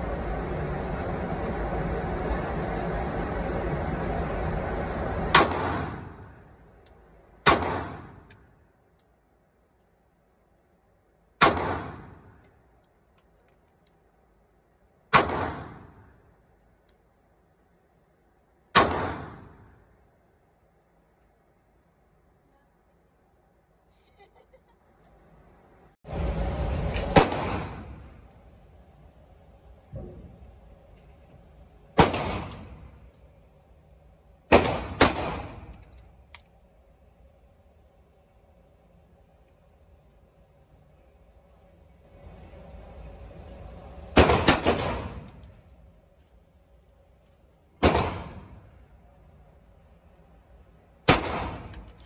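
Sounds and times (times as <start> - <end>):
handgun shots echoing: 47.8 - 48.6, 51.1 - 52.0.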